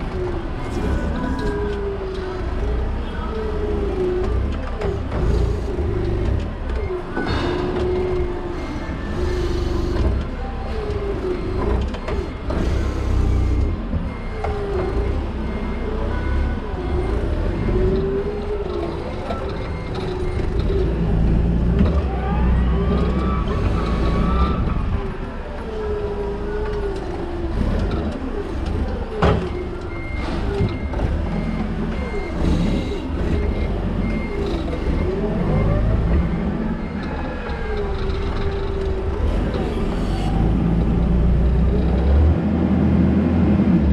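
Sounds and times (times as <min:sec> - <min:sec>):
forklift engine rumble and whine: 0:00.0 - 0:43.9.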